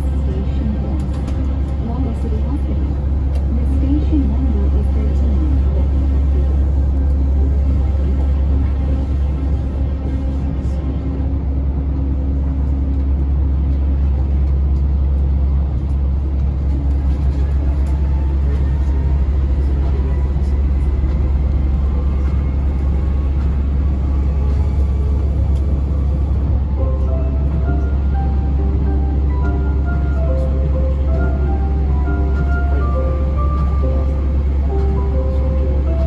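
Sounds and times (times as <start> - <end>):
monorail train rumbling: 0.0 - 36.0.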